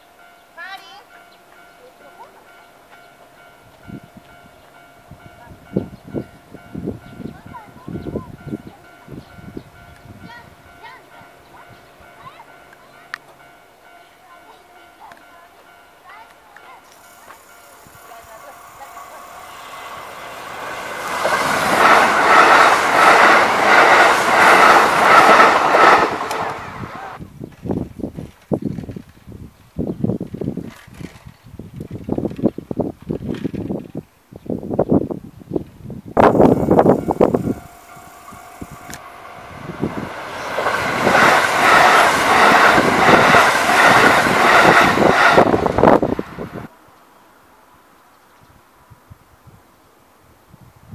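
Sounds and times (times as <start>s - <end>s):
electric train passing: 0.0s - 27.2s, 36.0s - 48.0s
wheels clattering over rail joints: 14.5s - 27.2s.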